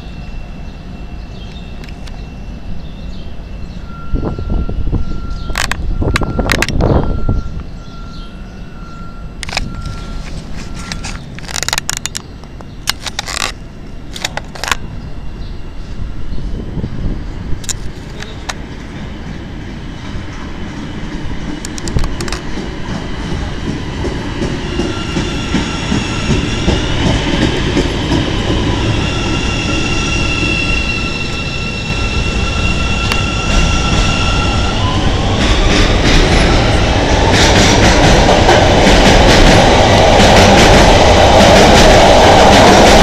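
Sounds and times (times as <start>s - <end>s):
train rushing past: 0.0s - 43.0s
train wheels rumbling: 0.0s - 43.0s
wheels clicking over rail joints: 9.4s - 14.8s, 17.6s - 29.0s.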